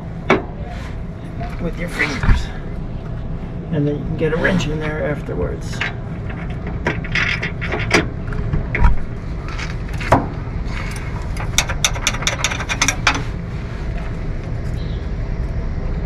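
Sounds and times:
wrench metal clicks and knocks: 5.8s - 10.2s, 10.9s - 13.3s.

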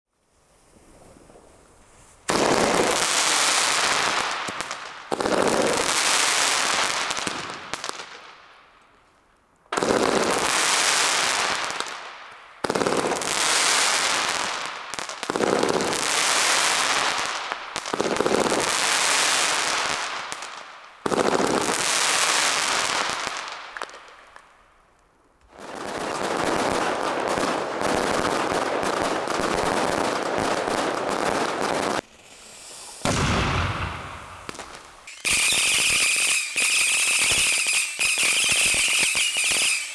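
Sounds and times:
firework shots: 2.3s - 8.2s, 25.5s - 39.9s.

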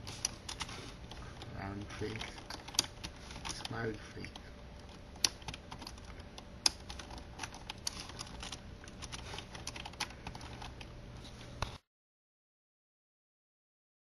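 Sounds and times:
keyboard keys clicking: 1.4s - 4.4s, 5.2s - 10.9s.

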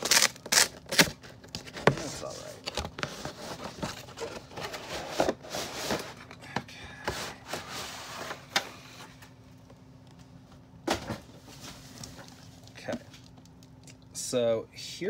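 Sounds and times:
cardboard rustling and scraping: 1.2s - 6.3s.

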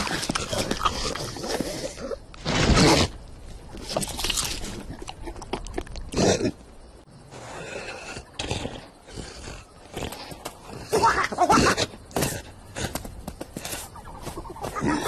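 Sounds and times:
cartoon lion grunting and straining: 7.3s - 12.9s.

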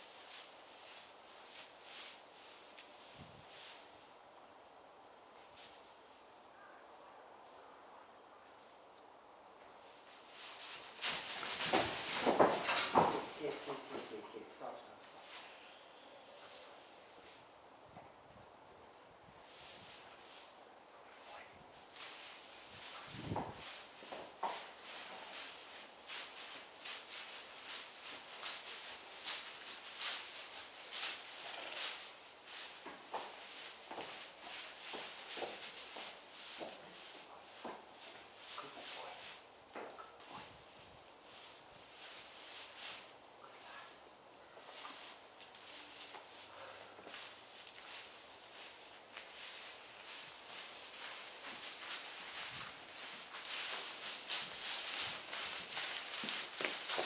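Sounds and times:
hooves rustling through straw: 0.0s - 6.8s, 9.4s - 57.0s.

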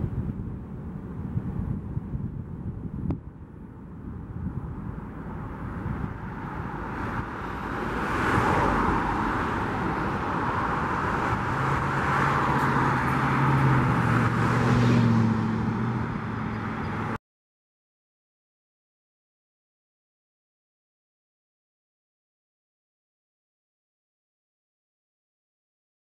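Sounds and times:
cars passing close by: 3.3s - 17.2s.

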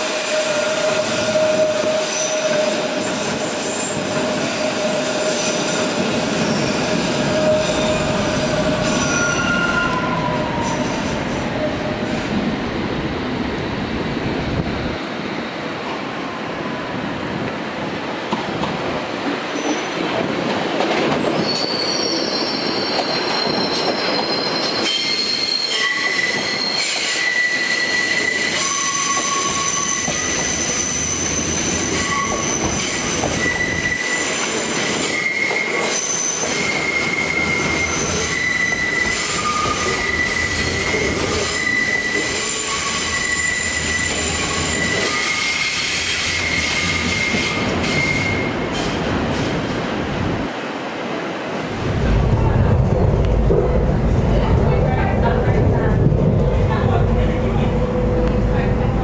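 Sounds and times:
train wheels squealing on rails: 0.0s - 12.4s, 19.4s - 20.1s, 20.9s - 49.9s
rail rumble: 45.9s - 59.0s.

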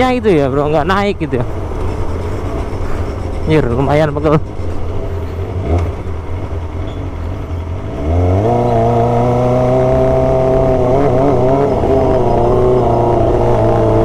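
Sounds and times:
motorcycle engine revving: 5.3s - 14.0s.

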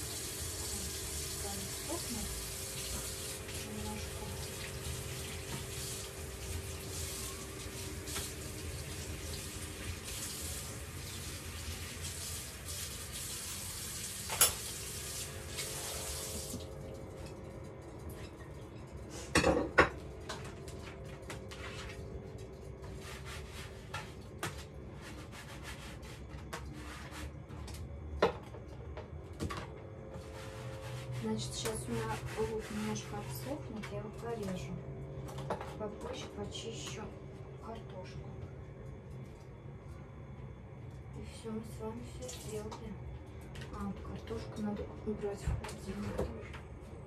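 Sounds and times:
tap water running into sink: 0.0s - 17.3s
dishes clattering: 19.3s - 20.4s.

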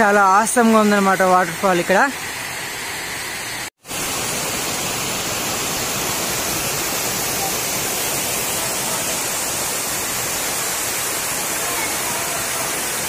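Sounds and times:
water rushing over rocks: 3.8s - 13.0s.

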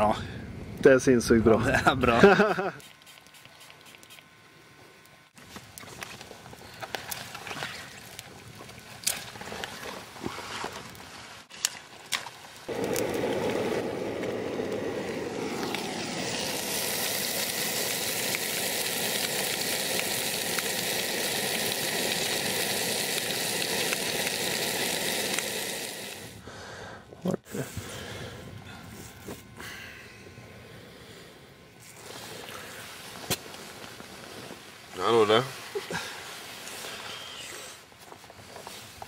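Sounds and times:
brush crackling in campfire: 5.2s - 26.5s, 31.8s - 39.0s
fire hissing: 12.6s - 37.9s.

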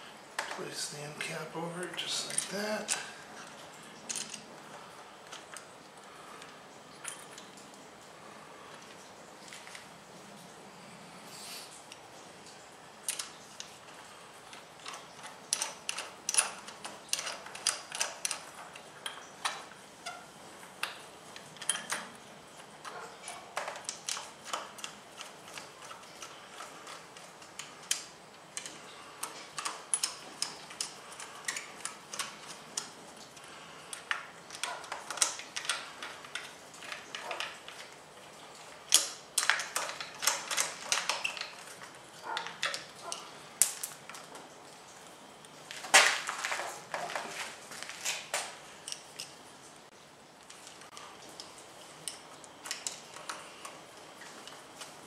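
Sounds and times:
small metallic clicks: 2.0s - 7.8s, 13.0s - 44.5s, 50.4s - 55.0s.

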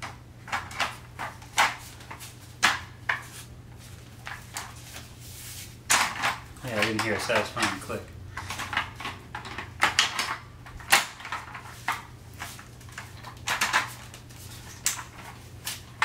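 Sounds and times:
plastic parts clacking: 5.9s - 16.0s.

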